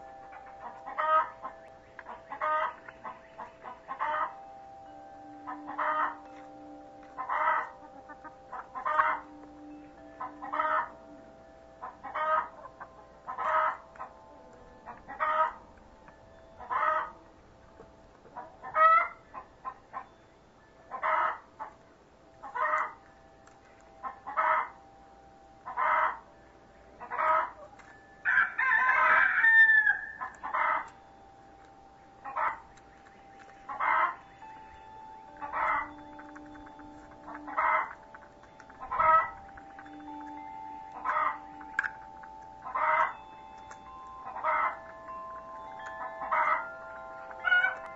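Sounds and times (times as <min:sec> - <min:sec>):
chicken calling: 0:00.0 - 0:04.5, 0:05.4 - 0:06.3, 0:07.1 - 0:14.2, 0:14.8 - 0:15.7, 0:16.6 - 0:17.2, 0:18.3 - 0:20.1, 0:20.9 - 0:21.8, 0:22.4 - 0:23.0, 0:24.0 - 0:24.8, 0:25.6 - 0:26.3, 0:27.0 - 0:31.0, 0:32.1 - 0:34.7, 0:35.3 - 0:43.2, 0:44.2 - 0:45.0, 0:45.8 - 0:47.9.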